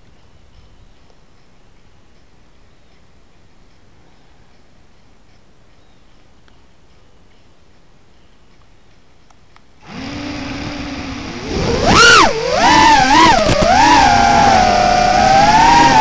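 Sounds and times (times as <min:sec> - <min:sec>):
quadcopter motors whining: 0:09.8 - 0:16.0.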